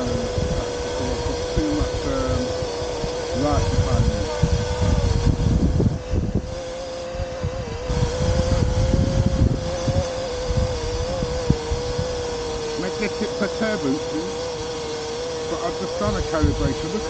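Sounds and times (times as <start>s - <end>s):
wind rumble on microphone: 0.0s - 14.0s, 15.6s - 17.0s
drone propellers whining: 0.0s - 17.0s.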